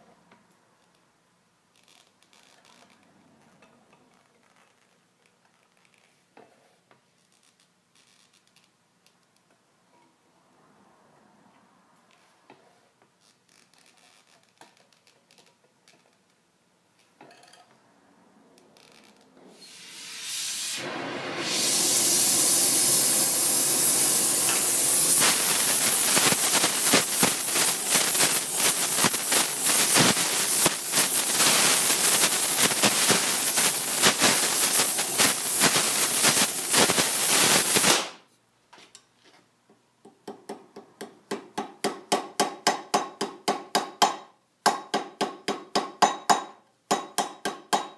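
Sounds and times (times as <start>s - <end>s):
gas torch flame hissing: 19.6s - 38.2s
hammer blows on sheet copper: 20.7s - 38.2s.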